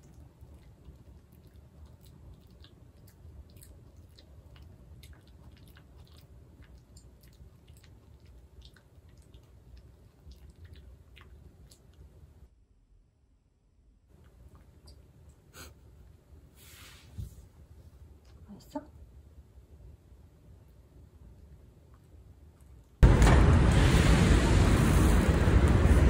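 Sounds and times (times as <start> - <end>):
dog chewing wetly: 0.0 - 12.4.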